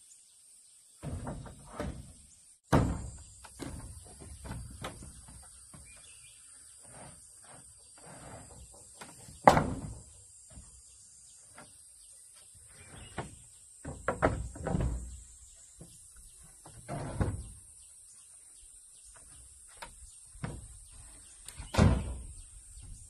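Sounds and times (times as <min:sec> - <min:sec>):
wooden planks knocking: 0:01.0 - 0:06.1, 0:08.9 - 0:10.8, 0:13.1 - 0:17.6, 0:19.1 - 0:23.0.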